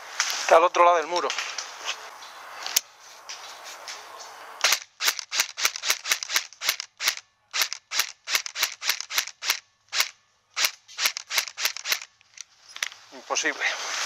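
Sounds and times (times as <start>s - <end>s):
rustling hiss: 0.0s - 14.0s
airsoft rifle shots: 4.6s - 12.1s.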